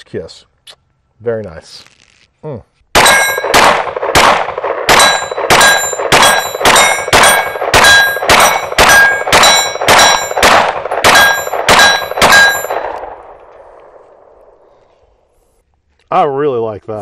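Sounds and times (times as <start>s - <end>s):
pistol shots with ringing: 3.0s - 14.6s.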